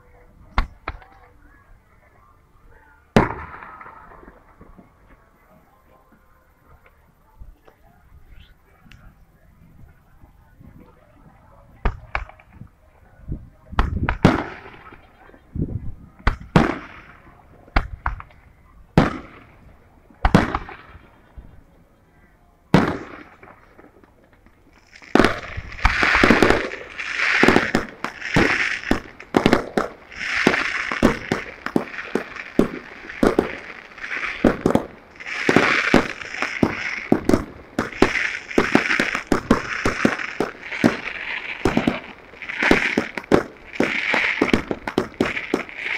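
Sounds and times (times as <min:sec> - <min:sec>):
firework bangs: 0:03.1 - 0:04.6, 0:13.7 - 0:15.1, 0:16.2 - 0:18.3, 0:19.0 - 0:19.6, 0:20.2 - 0:21.2, 0:22.7 - 0:23.9, 0:24.7 - 0:45.9
fireworks crackling and popping: 0:03.1 - 0:05.4, 0:11.8 - 0:12.8, 0:13.5 - 0:15.6, 0:16.2 - 0:21.5, 0:22.7 - 0:45.9.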